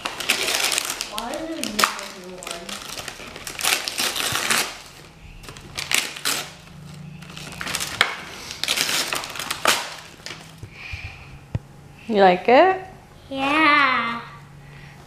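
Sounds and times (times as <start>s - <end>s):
tissue paper rustling and crinkling: 0.0s - 10.6s.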